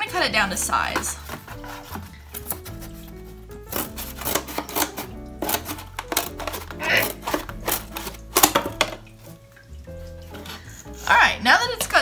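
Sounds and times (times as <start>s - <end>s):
background music: 0.0s - 12.0s
cardboard being cut: 1.2s - 8.6s.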